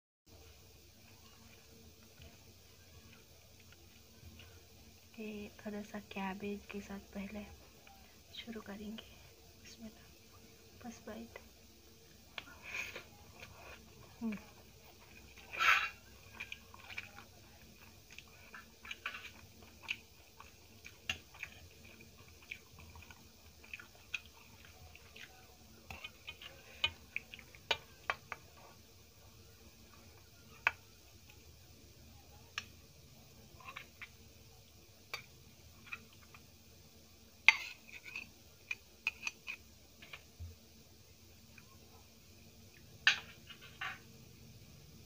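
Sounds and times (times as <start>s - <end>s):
faint chewing and mouth clicks: 3.0s - 5.1s, 12.1s - 28.8s.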